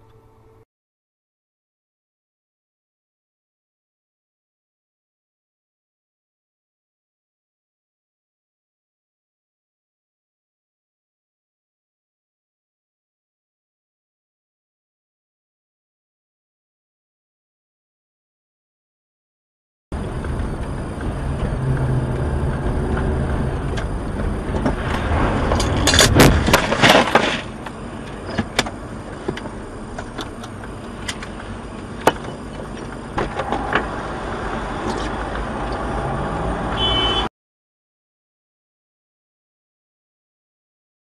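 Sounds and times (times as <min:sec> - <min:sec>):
vehicle engine and road noise: 0:19.9 - 0:37.3
car collision impacts: 0:24.6 - 0:29.6.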